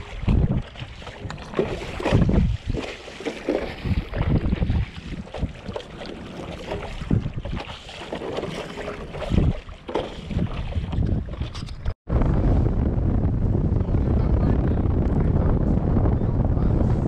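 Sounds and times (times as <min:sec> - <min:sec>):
paddle strokes splashing: 0:00.0 - 0:11.6
water slapping against paddleboard: 0:00.0 - 0:11.9
wind buffeting microphone: 0:00.0 - 0:17.0.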